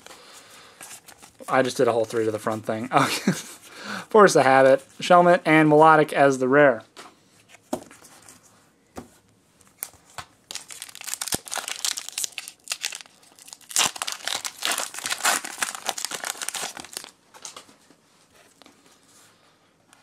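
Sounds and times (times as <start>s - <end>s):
foil wrapper crinkling and tearing: 9.8s - 17.2s.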